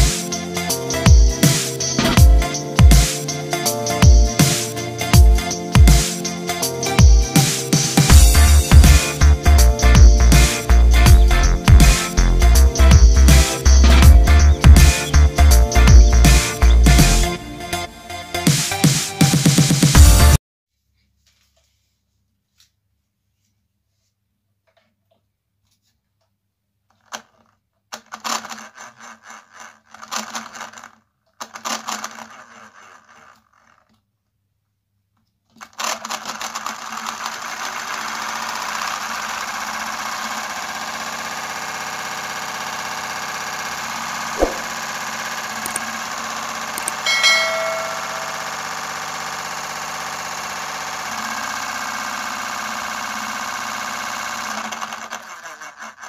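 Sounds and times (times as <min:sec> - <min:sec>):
small electric motor whirring: 0:36.6 - 0:56.0.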